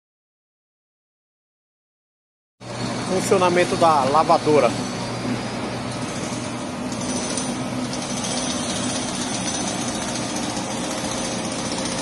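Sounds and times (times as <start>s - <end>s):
pump hum: 2.6s - 12.0s.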